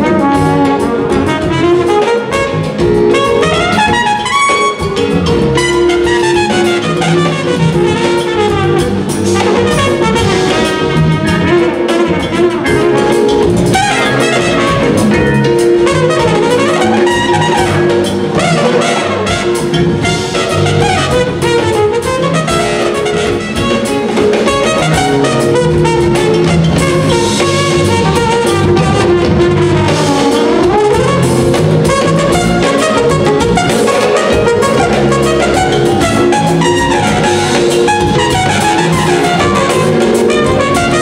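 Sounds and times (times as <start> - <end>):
drum kit: 0.0 - 41.0
jazz fusion band: 0.0 - 41.0
trumpet melody: 0.0 - 41.0.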